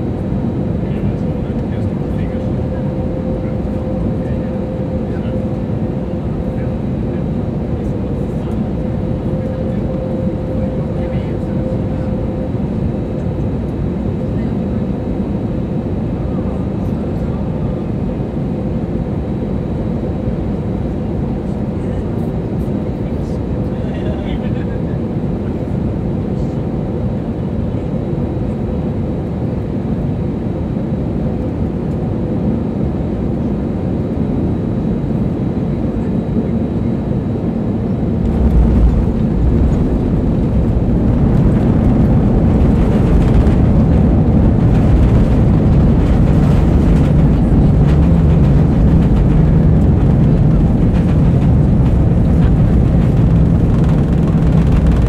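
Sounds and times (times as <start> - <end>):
aircraft engine and airflow noise: 0.0 - 55.0
wheels rumbling on runway: 38.0 - 55.0.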